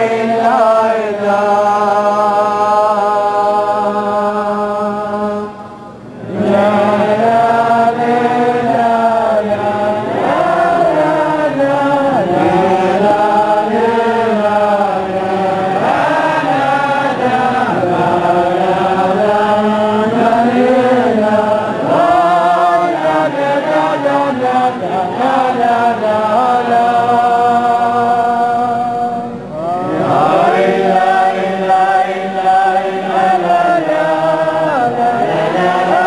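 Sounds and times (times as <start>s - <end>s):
crowd of men singing: 0.0s - 36.0s.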